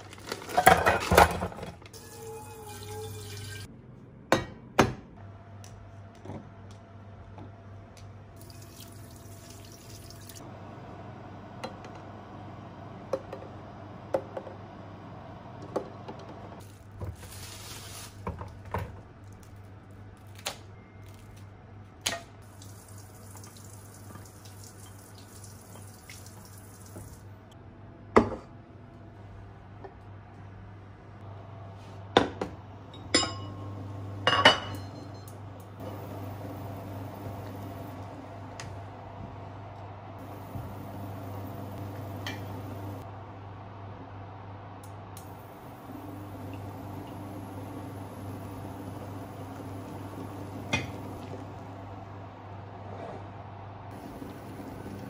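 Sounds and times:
low steady hum: 0:28.8 - 0:55.0
pots and dishes clinking: 0:32.9 - 0:35.3.

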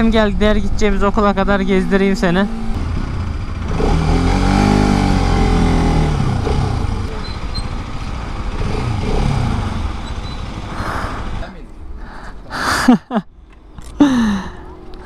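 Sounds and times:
motorcycle engine pulling away: 0:00.9 - 0:11.4.

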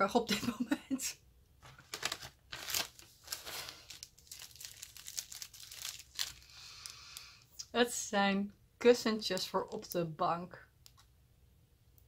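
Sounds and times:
packaging crinkling: 0:01.7 - 0:07.4.

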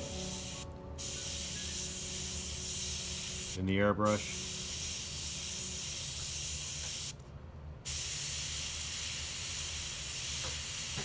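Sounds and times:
low hum: 0:00.0 - 0:06.7
airbrush spraying paint: 0:00.0 - 0:07.2, 0:07.8 - 0:11.0.

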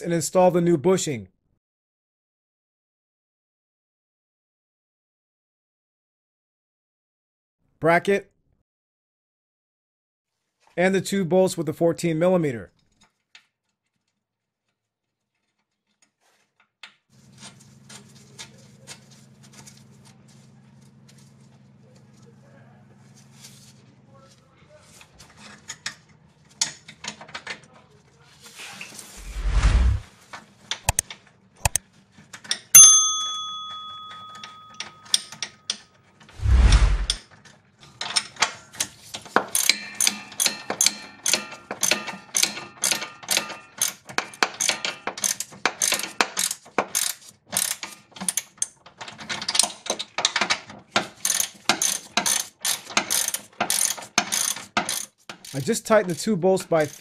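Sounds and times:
ratchet pawl clicking: 0:44.6 - 0:48.5, 0:51.2 - 0:55.7, 0:56.8 - 0:57.0.

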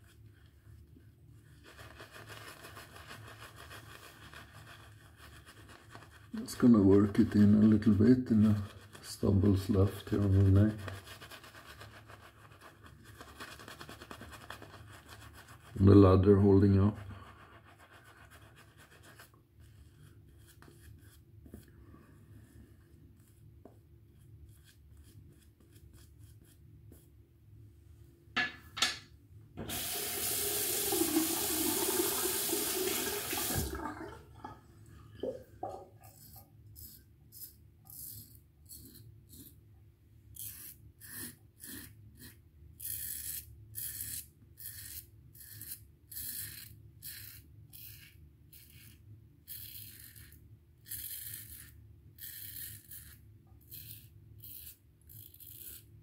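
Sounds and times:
tap running: 0:29.6 - 0:34.2
razor scraping stubble: 0:35.7 - 0:39.6, 0:40.3 - 0:55.9.

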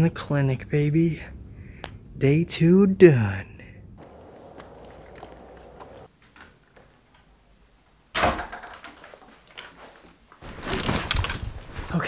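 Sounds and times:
door opening with a bang: 0:08.2 - 0:08.9.

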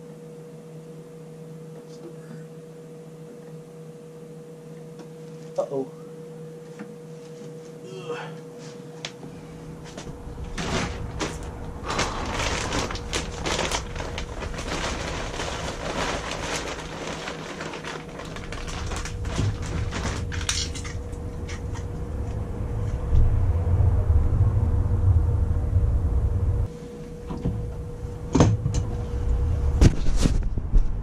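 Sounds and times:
low rumble: 0:09.3 - 0:31.0.

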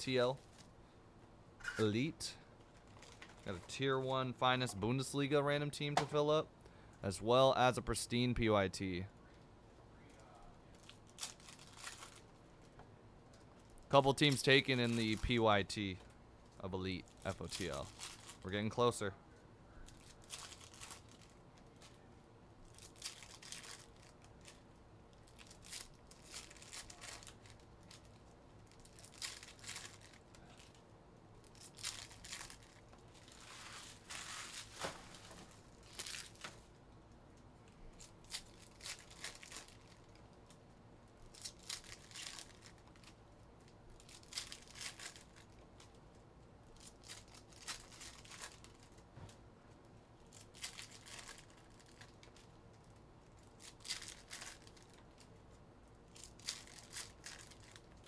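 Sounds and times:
wrappers crinkling: 0:02.7 - 0:03.8, 0:10.7 - 0:12.4, 0:13.3 - 0:15.5, 0:16.4 - 0:18.7, 0:19.9 - 0:22.0, 0:22.6 - 0:36.8, 0:37.9 - 0:40.6, 0:41.2 - 0:49.1, 0:50.2 - 0:58.0
foil packs tearing open: 0:25.4 - 0:27.5.

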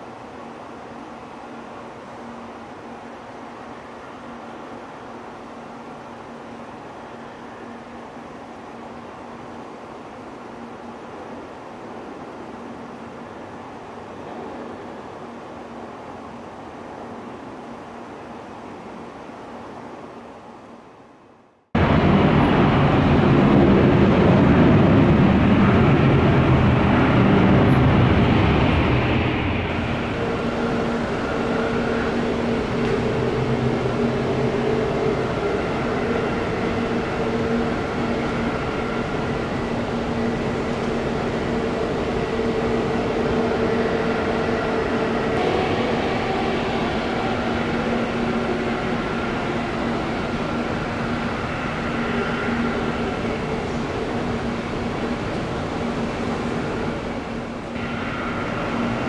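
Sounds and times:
jet engines idling: 0:21.8 - 0:59.0.

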